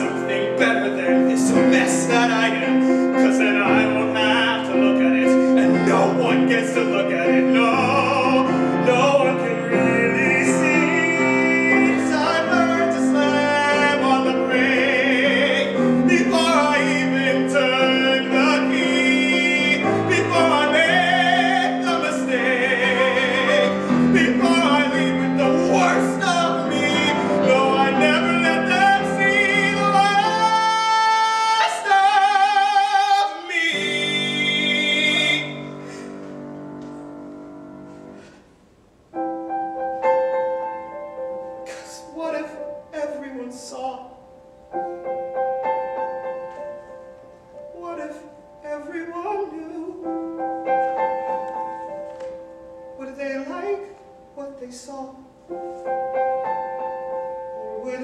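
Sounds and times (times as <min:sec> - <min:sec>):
man singing operatically: 0:00.0 - 0:35.9, 0:41.6 - 0:44.3, 0:47.6 - 0:51.5, 0:53.0 - 0:55.4, 0:57.5 - 0:58.0
grand piano: 0:00.0 - 0:58.0.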